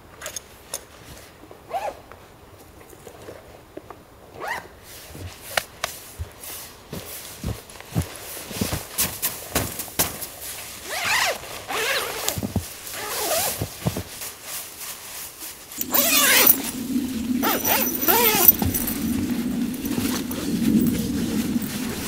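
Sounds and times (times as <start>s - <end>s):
tent fabric rustling: 6.6s - 22.0s
tent zipper being pulled: 10.9s - 14.1s, 15.8s - 22.0s
steady low hum: 15.8s - 22.0s.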